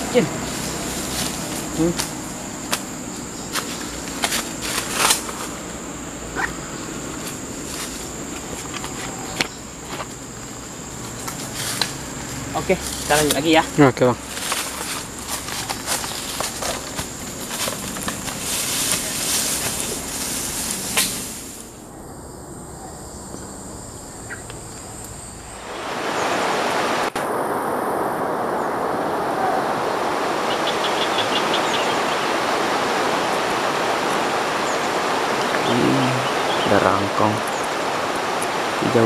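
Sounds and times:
steady rushing noise: 0.0 - 21.9, 25.0 - 39.0
leaves rustling: 0.0 - 22.0, 23.4 - 39.0
footsteps crunching dry leaves: 0.2 - 5.7, 7.0 - 10.2, 14.2 - 21.7.

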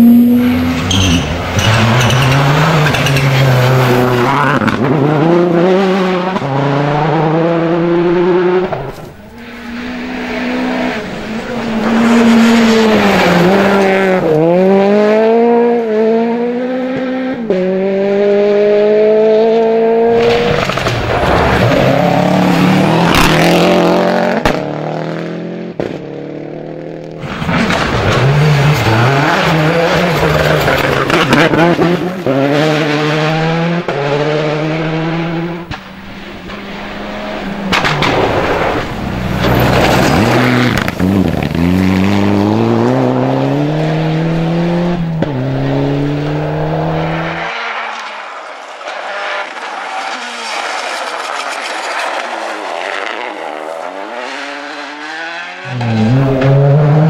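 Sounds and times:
rally car engines revving: 0.0 - 57.0
tyres sliding on gravel: 37.8 - 42.1, 47.8 - 53.6.

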